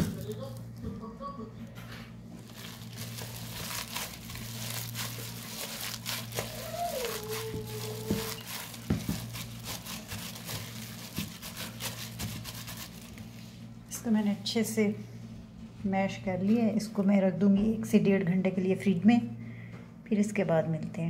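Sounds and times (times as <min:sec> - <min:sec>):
steady low hum: 0:00.0 - 0:21.0
plastic bag crinkling: 0:02.4 - 0:13.3
meat squishing: 0:02.4 - 0:13.4.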